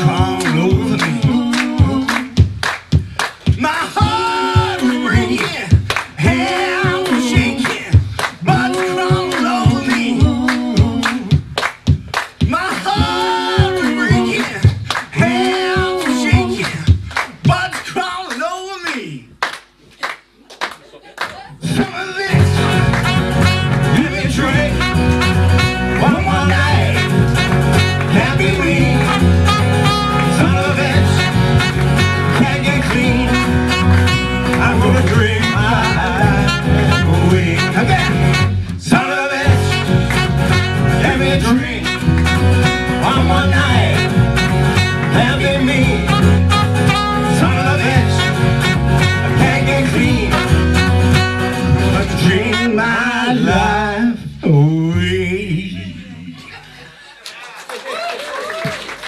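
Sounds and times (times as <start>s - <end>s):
man singing: 0.0s - 2.5s, 3.5s - 11.5s, 12.4s - 19.2s, 21.5s - 44.2s, 45.0s - 56.4s
double bass: 0.0s - 2.6s, 22.3s - 56.4s
strummed acoustic guitar: 22.3s - 38.7s, 39.4s - 52.8s
trumpet: 22.4s - 53.2s.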